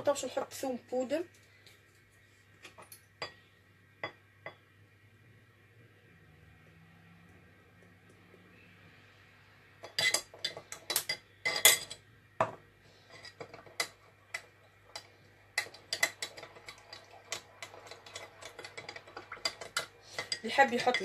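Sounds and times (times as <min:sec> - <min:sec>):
spoon clinking in a jug: 0:09.8 - 0:12.0.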